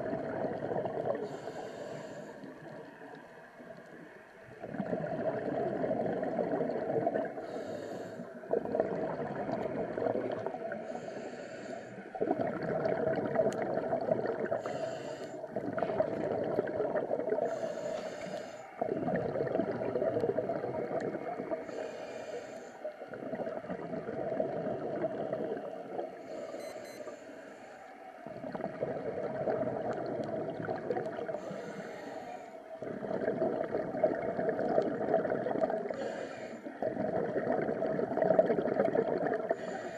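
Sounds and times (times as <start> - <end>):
diver breathing through regulator: 1.1 - 2.7, 7.2 - 8.9, 10.0 - 12.4, 14.4 - 16.4, 17.0 - 19.3, 20.7 - 23.5, 26.0 - 28.9, 31.1 - 33.2, 35.2 - 37.0, 39.3 - 39.9.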